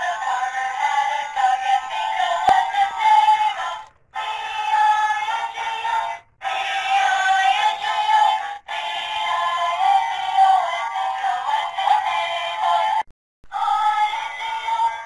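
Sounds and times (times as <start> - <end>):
toy playing electronic tune: 4.2 - 12.9.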